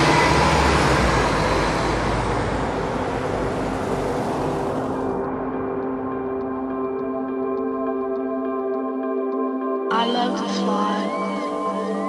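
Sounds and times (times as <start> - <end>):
street traffic noise: 0.0 - 9.5
ambient film music chord: 0.0 - 12.0
faint light ticks: 5.8 - 11.1.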